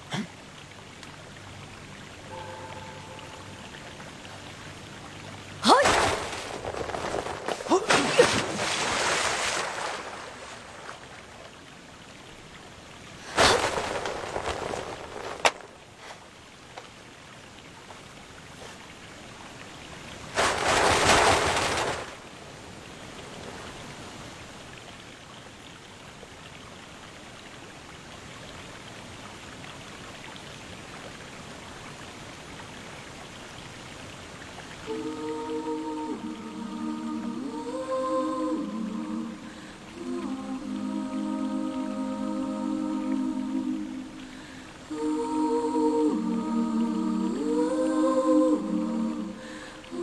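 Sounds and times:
waterfall rushing: 0.0 - 16.7, 34.7 - 50.0
music: 2.3 - 4.1.

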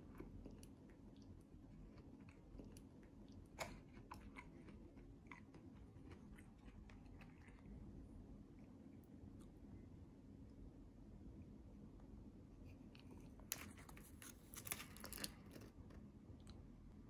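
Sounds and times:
person chewing food: 0.0 - 9.7.

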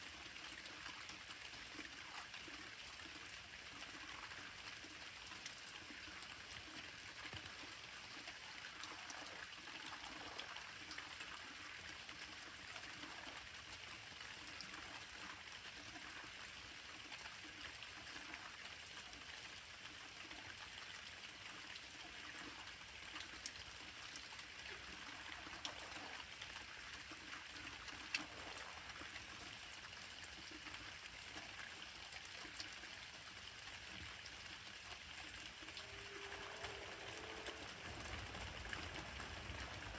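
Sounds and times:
light rain hiss: 22.9 - 39.9
raindrops ticking: 35.7 - 39.9.

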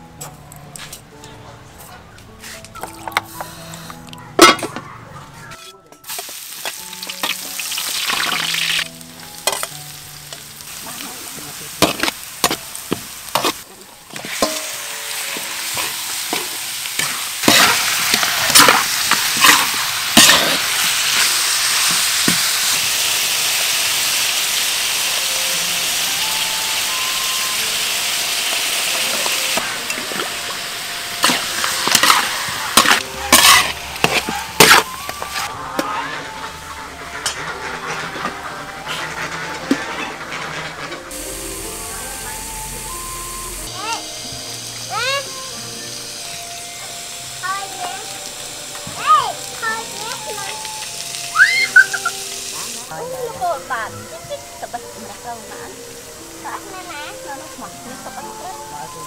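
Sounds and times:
spatula scraping wok: 5.5 - 44.8
food sizzling in hot oil: 6.0 - 59.0.

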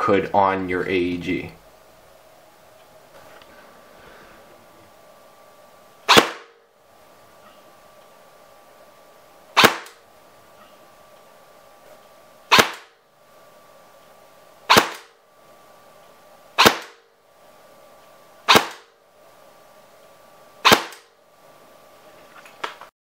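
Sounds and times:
airsoft rifle shots: 6.0 - 6.6, 9.6 - 10.0, 12.5 - 13.0, 14.7 - 15.2, 16.6 - 17.1, 18.5 - 18.9, 20.6 - 21.1.

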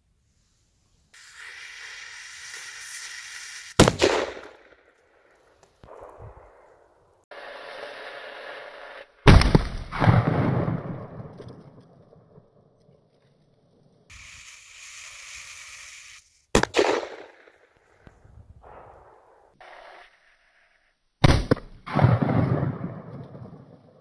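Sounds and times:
firecracker fuse hissing: 0.2 - 5.8, 14.1 - 18.0
firecracker bang: 3.8 - 4.7.

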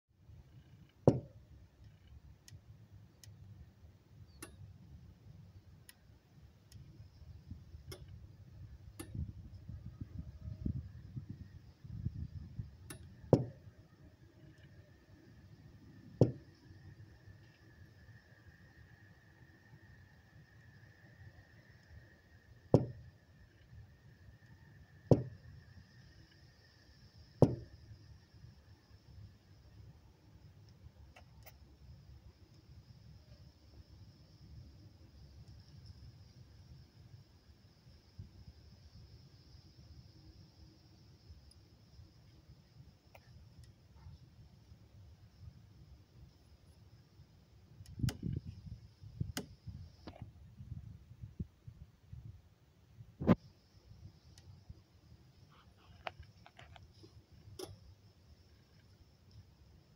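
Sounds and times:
sharp knocks on metal housing: 1.1 - 1.4, 16.2 - 16.4, 22.8 - 23.0, 25.1 - 25.4, 27.4 - 27.8.

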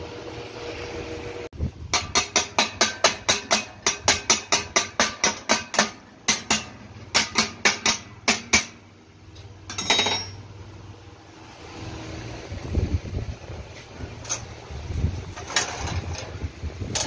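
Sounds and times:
chipping hammer tapping metal: 1.9 - 8.8.

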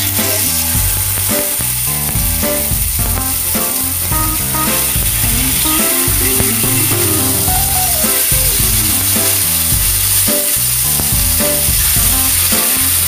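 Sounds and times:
chicken wings sizzling in pan: 0.0 - 13.0
background music: 2.4 - 10.6.

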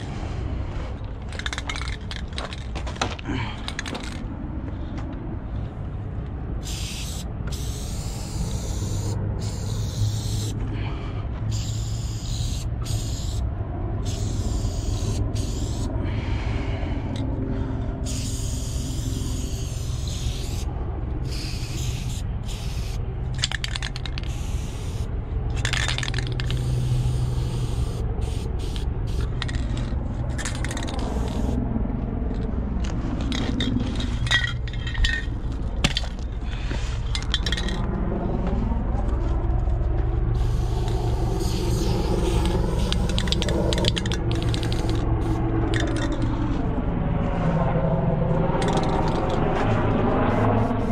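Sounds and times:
steady low rumble: 0.0 - 50.9
spray paint can hissing: 6.6 - 10.6, 11.5 - 13.4, 14.0 - 15.9, 18.0 - 31.6, 40.4 - 46.2, 48.6 - 49.4.

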